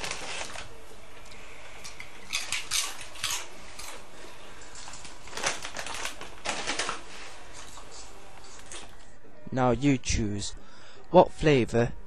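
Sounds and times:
dog crunching crisps: 0.0s - 0.8s, 1.7s - 9.0s.

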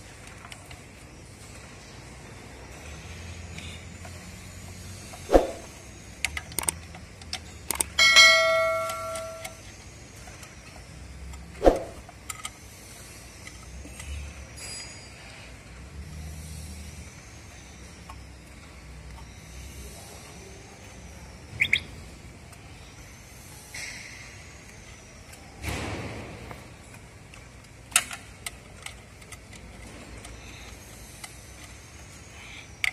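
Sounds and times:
sharp ringing metal clink: 8.0s - 9.6s.

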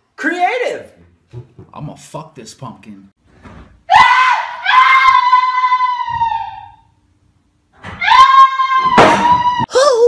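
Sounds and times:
person screaming shrilly: 3.9s - 6.9s, 7.9s - 10.0s.

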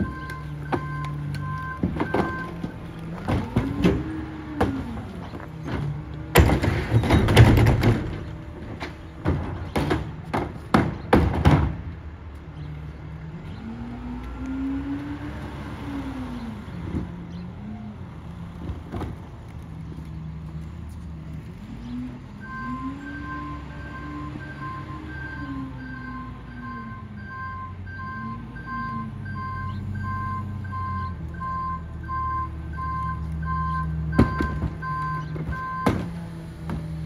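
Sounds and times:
carts clattering and banging: 0.0s - 12.0s
garbage truck engine: 0.0s - 37.0s.

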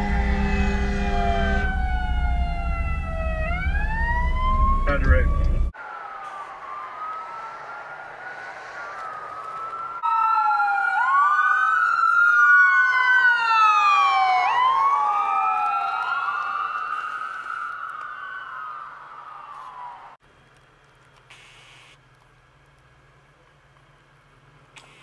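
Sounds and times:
ambulance siren wailing: 0.0s - 20.2s.

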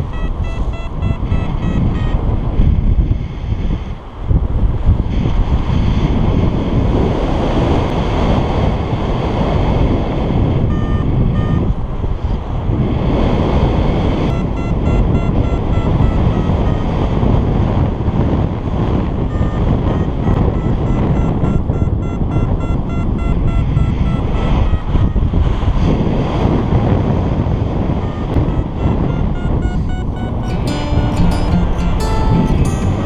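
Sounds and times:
variometer beeping: 0.0s - 2.5s, 10.6s - 11.8s, 14.3s - 17.4s, 19.2s - 25.6s, 27.9s - 33.0s
wind rushing over microphone: 0.0s - 33.0s.

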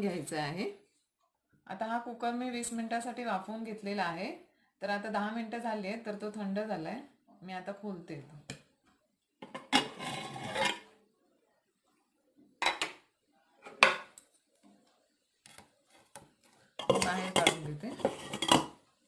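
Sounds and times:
metal lid scraping and clattering: 9.4s - 10.9s, 16.8s - 18.8s.

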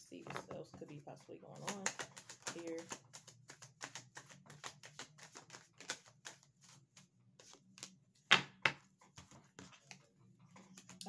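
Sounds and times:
cards being shuffled: 0.2s - 8.0s.

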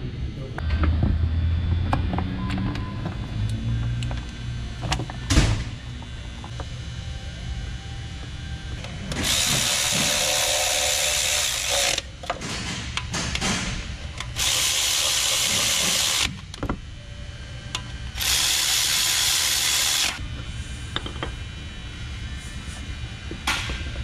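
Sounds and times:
cordless electric ratchet running: 9.2s - 12.1s, 14.2s - 16.5s, 18.1s - 20.2s
sharp ratchet clicks: 14.3s - 16.3s.

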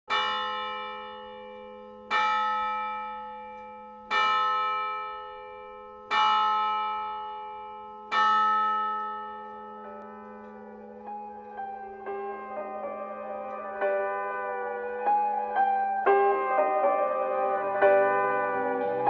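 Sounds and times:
church bell tolling: 0.1s - 19.0s.

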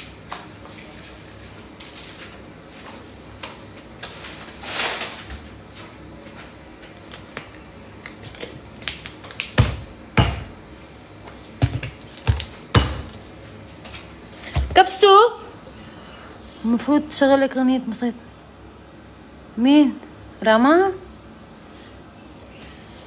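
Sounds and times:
sharp knocks on countertop: 9.6s - 10.5s.

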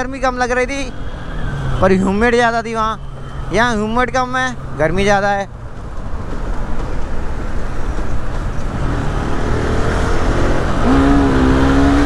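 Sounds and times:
wind and road rush: 0.0s - 12.0s
motorcycle engine: 8.0s - 12.0s.

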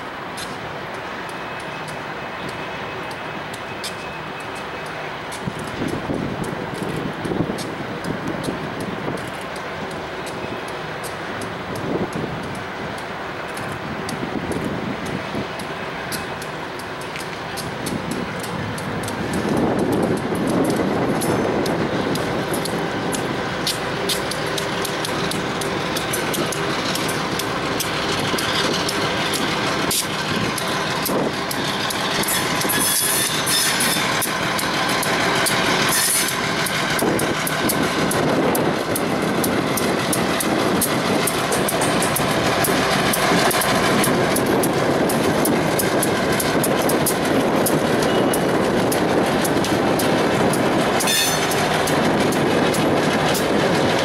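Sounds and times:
train wheels clicking over rail joints: 0.0s - 54.0s
train wheels squealing: 1.3s - 5.1s, 24.3s - 36.9s, 47.9s - 48.6s, 51.0s - 51.7s.

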